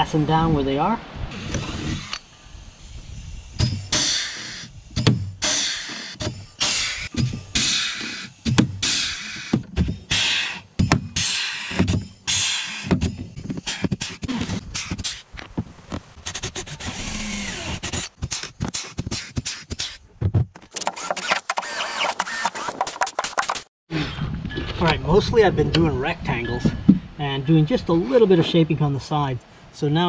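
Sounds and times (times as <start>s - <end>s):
cordless drill running: 1.3s - 10.6s, 16.4s - 18.2s, 20.8s - 22.8s
rivet gun air hiss and pop: 3.6s - 10.6s, 18.3s - 20.0s.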